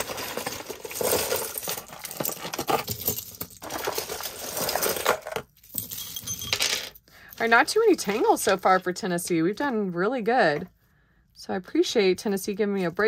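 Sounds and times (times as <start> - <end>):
jewelry jingling and clinking: 0.0 - 8.9.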